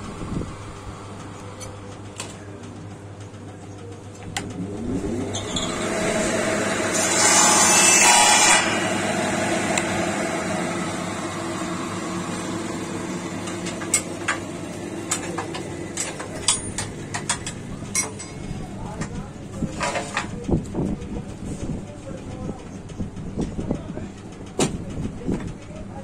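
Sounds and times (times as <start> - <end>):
power tool motor running: 4.4 - 17.2
cutting or grinding: 4.6 - 16.4.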